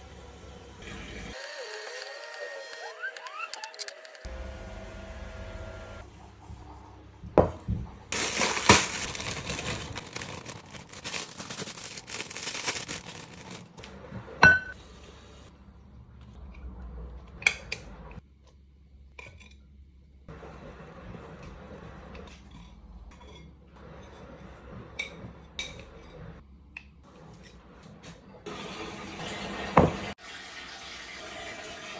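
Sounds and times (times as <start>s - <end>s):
plastic bag crinkling: 8.1s - 13.8s
utensils clinking on glass bowl: 14.4s - 14.8s.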